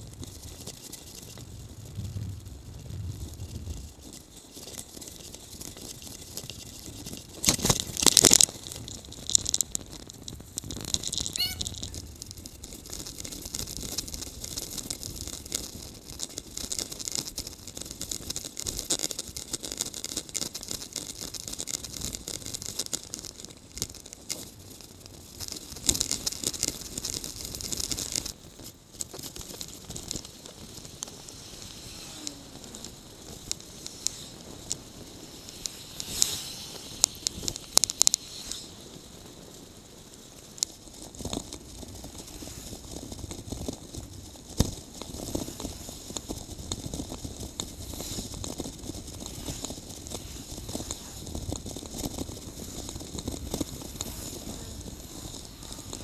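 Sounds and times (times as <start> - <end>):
bicycle rattling over road: 0.0 - 56.0
bicycle clatter: 3.4 - 39.2
tyre noise: 29.0 - 38.9
wind hiss: 29.5 - 56.0.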